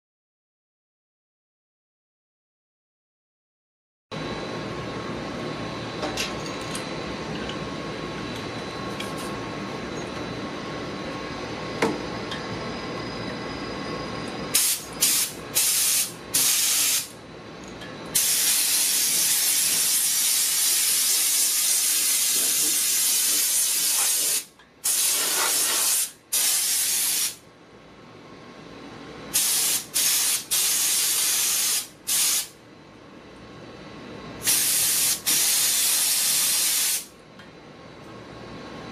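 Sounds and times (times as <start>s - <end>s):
compressed air spray hissing: 14.6s - 17.1s, 18.2s - 27.4s, 29.3s - 32.5s, 34.4s - 37.1s.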